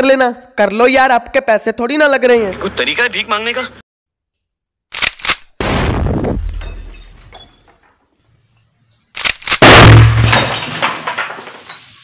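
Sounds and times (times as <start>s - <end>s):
short clicks: 4.9s - 5.5s
glass bottles shattering: 6.2s - 8.0s, 9.6s - 12.0s
cannon blasts with rumble: 9.6s - 10.5s.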